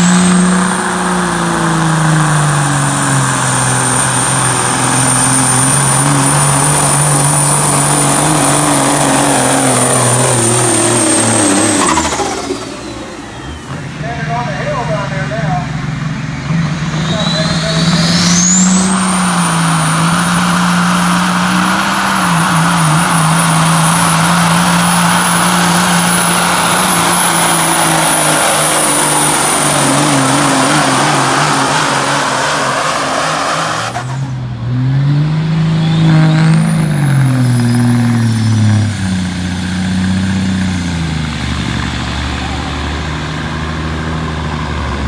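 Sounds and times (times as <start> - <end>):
diesel truck engine revving: 0.0 - 45.0
turbo whistle: 17.0 - 19.8.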